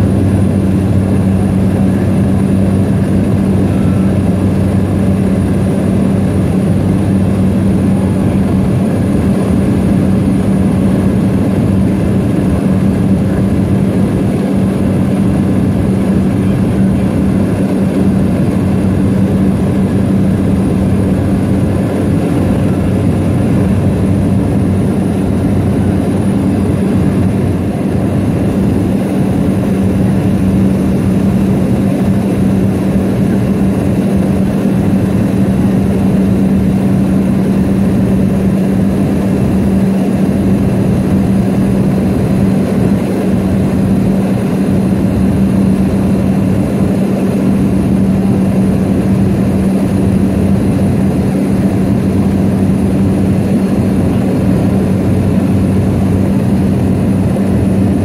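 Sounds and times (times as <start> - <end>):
propeller plane engine droning: 0.0 - 58.0.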